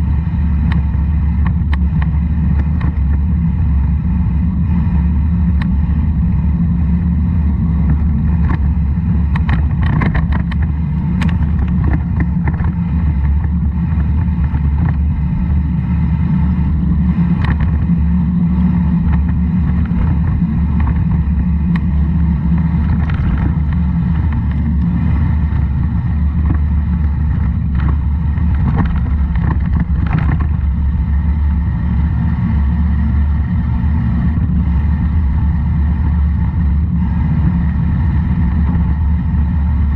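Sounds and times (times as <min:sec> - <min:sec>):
road noise: 0:00.0 - 0:39.9
wind buffeting: 0:00.0 - 0:39.9
sharp clicks and rattles: 0:07.8 - 0:15.3, 0:16.8 - 0:18.1, 0:18.9 - 0:31.1.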